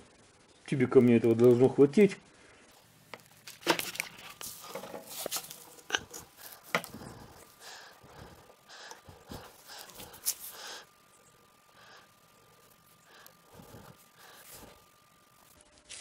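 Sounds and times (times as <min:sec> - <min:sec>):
soft breaths: 0:05.4 - 0:15.6.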